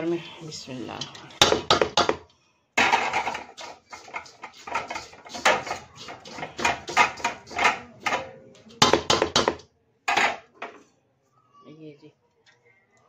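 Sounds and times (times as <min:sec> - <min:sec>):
metal spoon scraping steel pot: 0:02.9 - 0:09.6.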